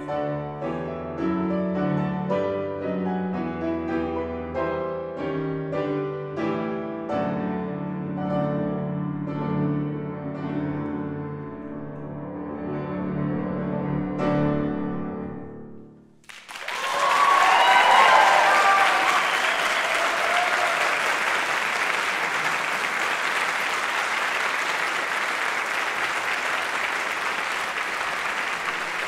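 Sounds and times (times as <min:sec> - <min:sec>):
audience applause: 0:16.2 - 0:29.0
audience cheering: 0:16.3 - 0:29.0.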